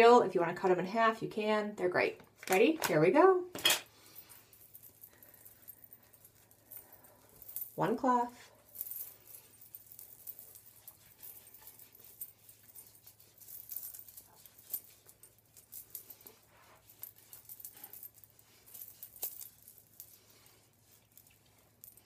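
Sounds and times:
bangle bracelets clinking: 0:03.5 - 0:22.0
cloth rubbing over face: 0:09.2 - 0:21.8.

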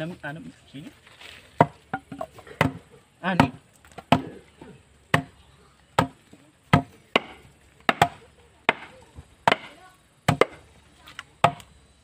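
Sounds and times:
blade chopping on wooden block: 0:06.0 - 0:10.6.

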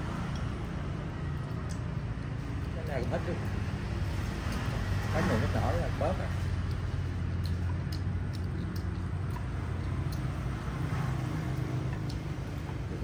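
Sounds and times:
chopsticks clicking on bowls: 0:06.6 - 0:10.4, 0:11.3 - 0:12.9.

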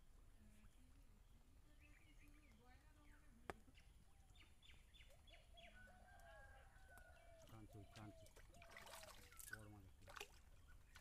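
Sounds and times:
rooster crowing: 0:05.6 - 0:07.5.

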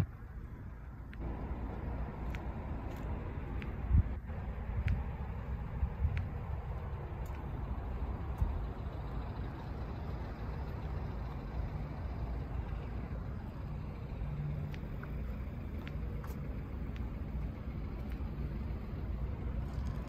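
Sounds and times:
outdoor background rumble: 0:00.0 - 0:20.0
faint clicks: 0:14.2 - 0:18.5.

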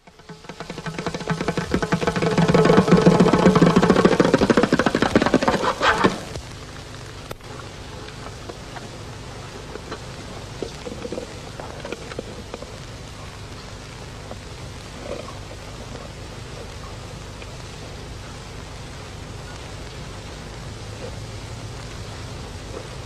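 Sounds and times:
fingers tapping bongo drums: 0:00.0 - 0:06.2
steady hiss and hum: 0:00.0 - 0:23.0.

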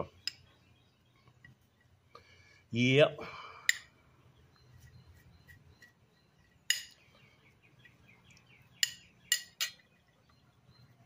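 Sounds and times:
faint bird chirping: 0:00.0 - 0:11.0
metal spoon clinking on ceramic plate: 0:06.7 - 0:07.0, 0:08.8 - 0:09.8.

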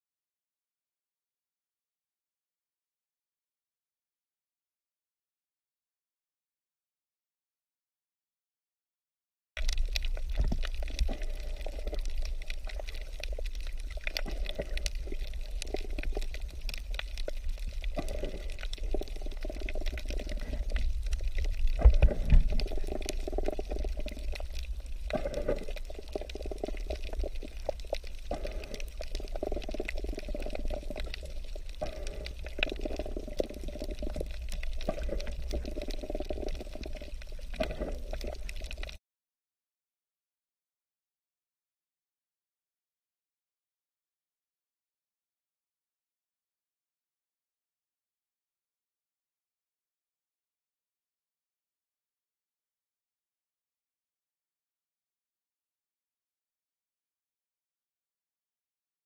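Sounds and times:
muffled underwater wash: 0:09.6 - 0:39.0
small underwater clicks and crackles: 0:09.6 - 0:39.0.

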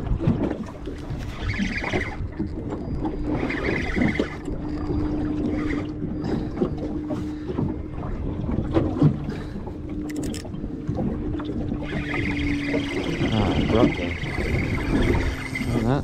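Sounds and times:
boat motor humming: 0:00.0 - 0:16.0
water noise: 0:00.0 - 0:16.0
wind: 0:00.0 - 0:16.0
small clicks: 0:09.9 - 0:10.6.

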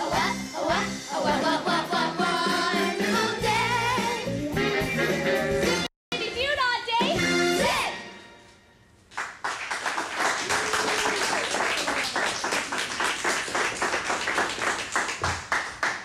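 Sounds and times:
song: 0:00.0 - 0:06.3
small group applauding: 0:09.1 - 0:16.0.

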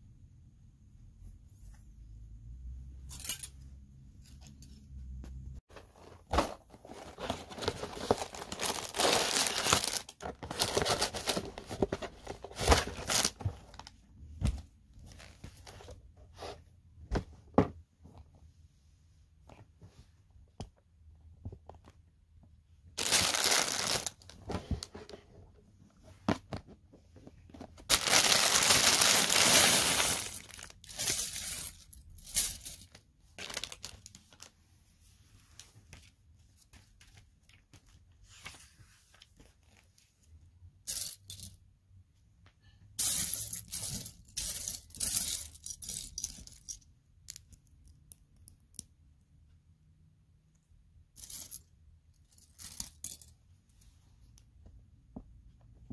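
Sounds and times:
plastic pieces clattering: 0:06.4 - 0:13.8, 0:23.0 - 0:24.4, 0:27.9 - 0:34.5
plastic bag crinkling: 0:06.8 - 0:11.8, 0:23.0 - 0:24.3, 0:27.9 - 0:31.8, 0:32.5 - 0:34.5.

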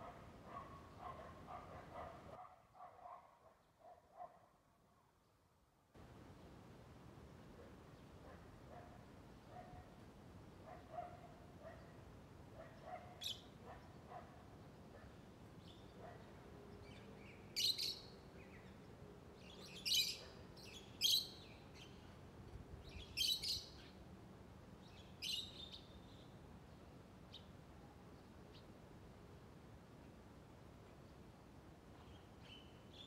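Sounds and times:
bird chirping: 0:16.8 - 0:18.8, 0:19.4 - 0:22.1, 0:22.8 - 0:24.0.

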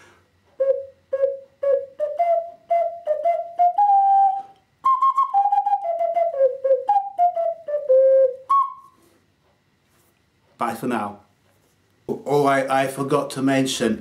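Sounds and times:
ocarina melody: 0:00.6 - 0:09.1.

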